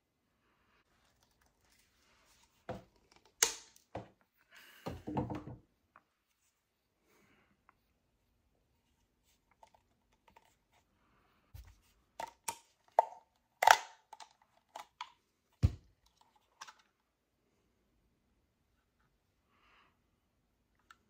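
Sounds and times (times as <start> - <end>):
plastic clips snapping: 3.0 - 3.8, 12.2 - 15.2.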